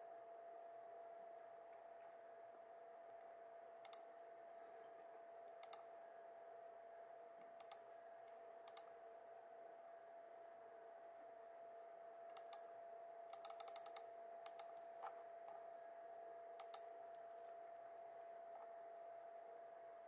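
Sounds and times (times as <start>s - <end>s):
faint steady hum: 0.0s - 20.0s
mouse button clicking: 3.8s - 4.0s, 5.6s - 5.8s, 16.6s - 17.6s.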